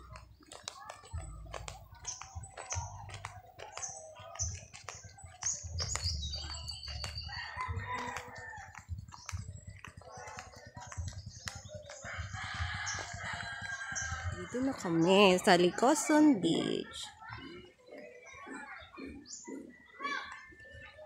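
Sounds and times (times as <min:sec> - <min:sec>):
rooster crowing: 0:07.3 - 0:08.8.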